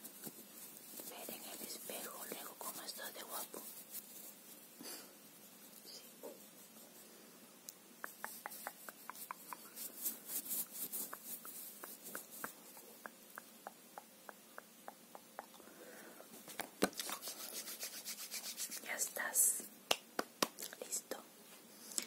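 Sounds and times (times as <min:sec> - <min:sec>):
rubbing against microphone: 0:00.0 - 0:07.2, 0:08.0 - 0:13.8, 0:16.4 - 0:19.6.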